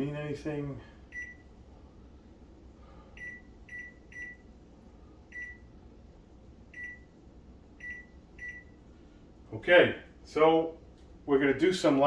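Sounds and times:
short high microwave beeps: 1.1 - 1.5, 3.2 - 4.5, 5.3 - 5.8, 6.7 - 7.2, 7.8 - 8.8.

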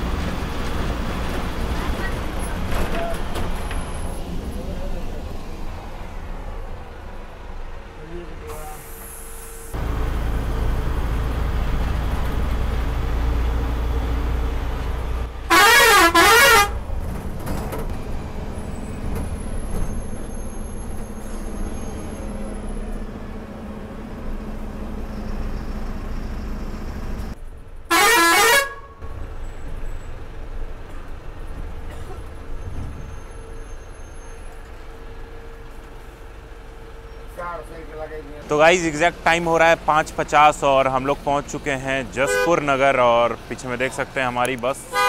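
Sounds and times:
bus engine and road noise: 0.0 - 45.0
bus horn blast: 15.4 - 16.9, 27.9 - 29.0, 42.2 - 42.6.

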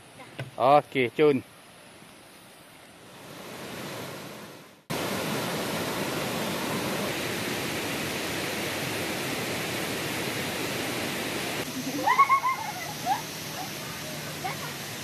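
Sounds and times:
faint background hiss: 0.0 - 15.0
waterfall rushing over boulders: 3.1 - 15.0.

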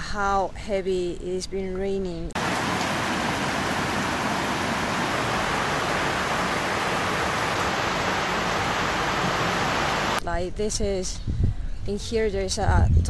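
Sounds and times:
heavy rain on concrete: 2.4 - 10.2.

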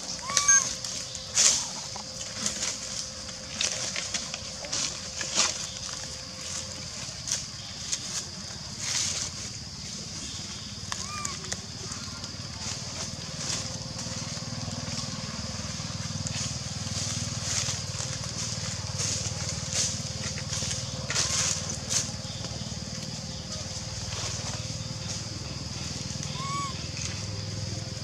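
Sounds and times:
steady high drone: 0.0 - 8.4
low hum: 0.0 - 10.3
dry leaves crackling: 0.0 - 28.0.

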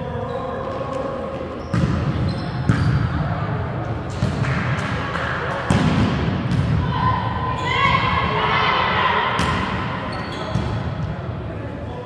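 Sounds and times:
volleyball hits echoing: 1.7 - 3.2, 4.0 - 7.2, 9.2 - 11.2.

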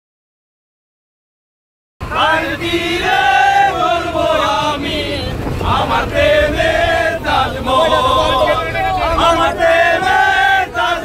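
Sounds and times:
men singing and chanting: 2.0 - 11.0.

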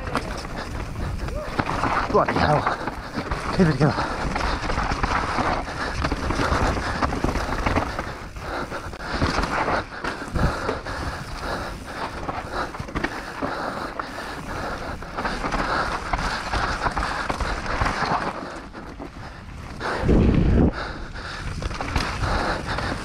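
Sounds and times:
bike tyres over dirt and rock: 0.0 - 23.0.

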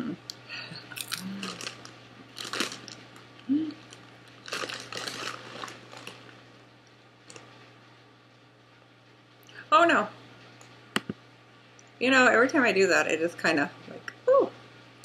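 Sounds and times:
person humming: 0.0 - 1.7, 3.4 - 3.9
plastic snack bag crinkling: 1.0 - 6.6.

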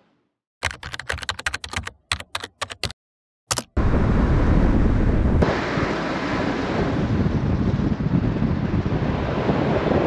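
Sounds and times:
wind buffeting microphone: 3.8 - 10.0.

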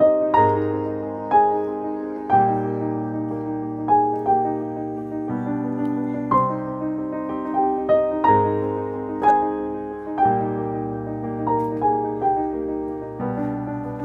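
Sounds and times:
slow piano-like keyboard melody: 0.0 - 14.0.

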